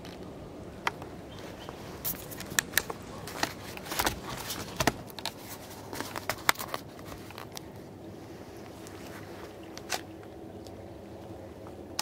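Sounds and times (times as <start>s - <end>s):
sharp clicks and crackles: 0.0s - 7.8s
faint steady hiss: 0.0s - 12.0s.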